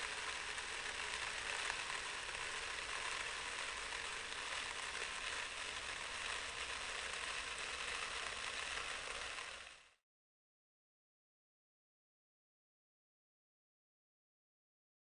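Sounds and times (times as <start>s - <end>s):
sand grains falling on sand: 0.0s - 9.8s.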